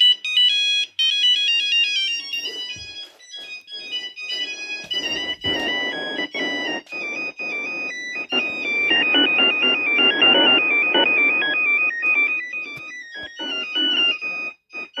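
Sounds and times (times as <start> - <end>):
electronic phone ringtone melody: 0.0 - 15.0.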